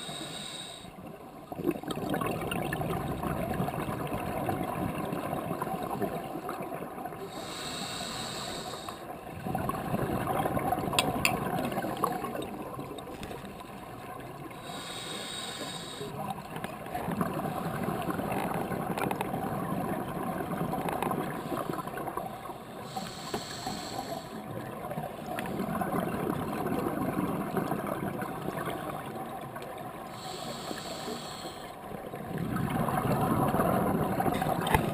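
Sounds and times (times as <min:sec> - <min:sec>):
regulator inhalation hiss: 0:00.0 - 0:00.9, 0:07.3 - 0:09.0, 0:14.6 - 0:16.2, 0:22.8 - 0:24.4, 0:30.1 - 0:31.7
exhaled air bubbling: 0:01.4 - 0:34.9.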